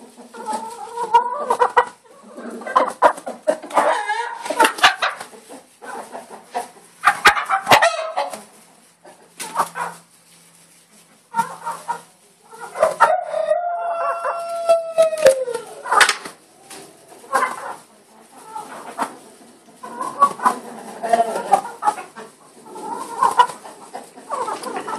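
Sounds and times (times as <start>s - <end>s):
chickens clucking: 0.0s - 24.9s
rooster crowing: 13.1s - 15.7s.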